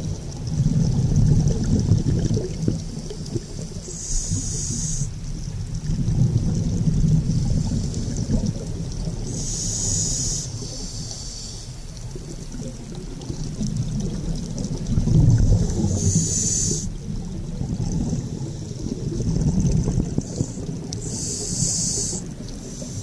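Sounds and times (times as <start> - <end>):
exhaled air bubbling: 0.0 - 23.0
scuba regulator inhalation hiss: 3.1 - 5.2, 7.2 - 8.4, 9.1 - 11.9, 15.6 - 17.0, 20.1 - 23.0.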